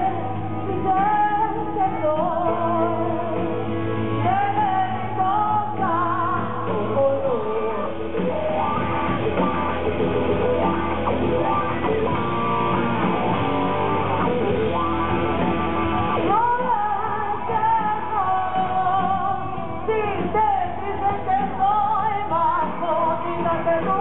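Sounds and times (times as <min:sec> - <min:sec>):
singing: 0:00.0 - 0:08.6, 0:16.3 - 0:24.0
live rock band with electric guitars: 0:00.0 - 0:24.0.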